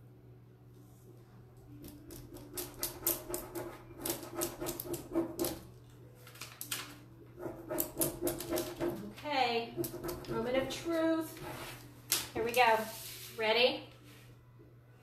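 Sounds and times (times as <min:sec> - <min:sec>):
burnishing tool scratching paper: 0:02.2 - 0:05.6, 0:07.4 - 0:11.9.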